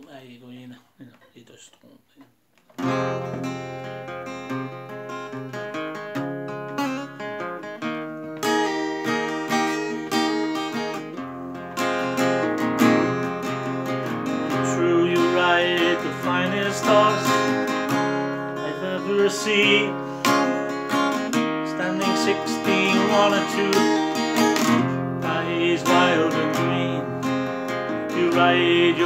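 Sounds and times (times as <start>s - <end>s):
acoustic guitar strumming: 2.7s - 29.0s.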